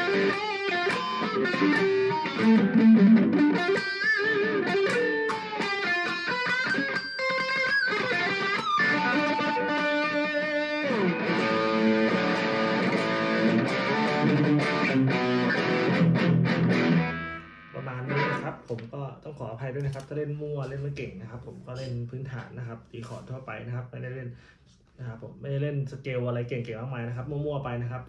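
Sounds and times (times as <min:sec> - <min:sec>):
electric guitar through amp: 0:00.0 - 0:18.8.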